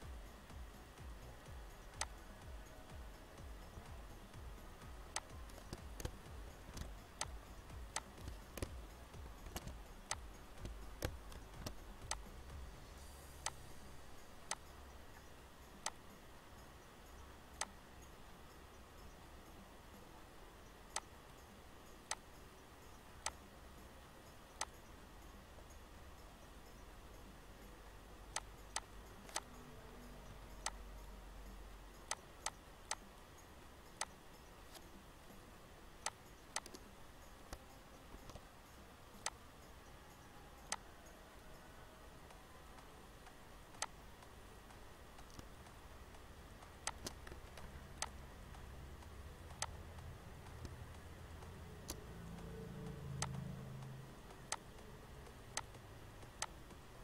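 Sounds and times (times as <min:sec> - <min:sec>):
faint low hum: 0:00.0 - 0:57.0
mouse and keyboard clicks: 0:05.1 - 0:08.8, 0:09.4 - 0:12.3, 0:28.3 - 0:30.8, 0:32.0 - 0:33.1, 0:34.0 - 0:34.9, 0:36.0 - 0:36.9, 0:37.5 - 0:38.5, 0:42.3 - 0:44.3, 0:45.2 - 0:45.8, 0:46.6 - 0:48.2, 0:49.0 - 0:51.0, 0:51.8 - 0:56.8.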